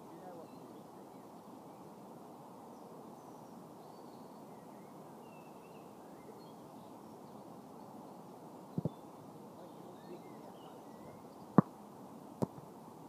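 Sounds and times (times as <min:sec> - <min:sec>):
low background noise: 0:00.0 - 0:13.0
distant bird chirps: 0:02.7 - 0:12.6.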